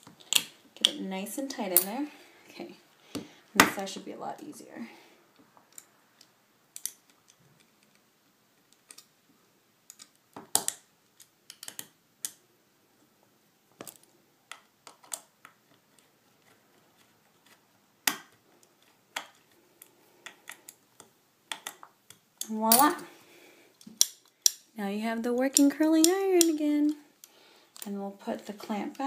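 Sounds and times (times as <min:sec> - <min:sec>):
small metal clicks and taps: 0:09.9 - 0:12.4, 0:18.1 - 0:22.9, 0:23.8 - 0:24.7.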